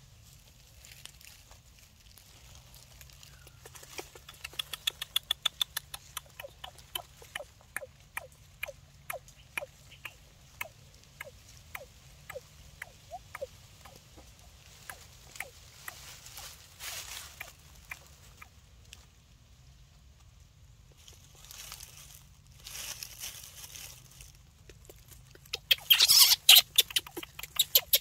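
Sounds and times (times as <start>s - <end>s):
young animal squeaking: 3.2s - 16.0s, 24.7s - 28.0s.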